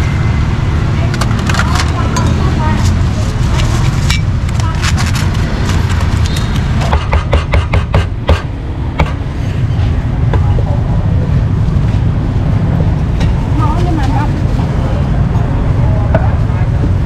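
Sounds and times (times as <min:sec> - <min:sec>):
street traffic rumble: 0:00.0 - 0:17.0
cleaver chopping on wooden board: 0:06.9 - 0:09.2.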